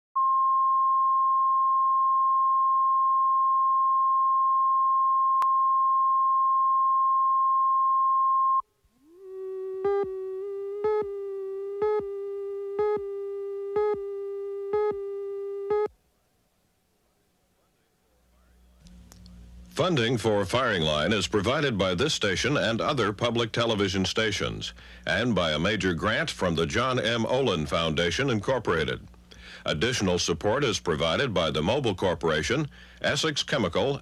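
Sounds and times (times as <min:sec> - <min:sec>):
low buzzy tone: 0:00.2 - 0:15.9
steady sine tone: 0:00.2 - 0:15.9.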